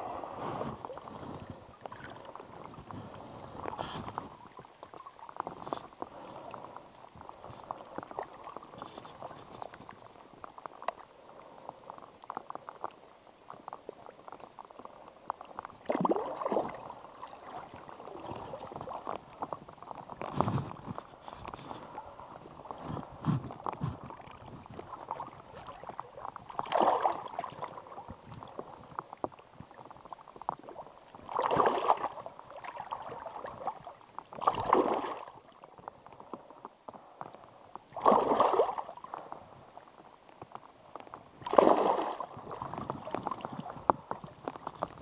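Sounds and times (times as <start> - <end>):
steady water sound: 0.0 - 45.0
river water splashing around hands: 15.8 - 19.5, 24.1 - 28.0, 31.3 - 35.4, 37.9 - 39.2, 41.4 - 44.3.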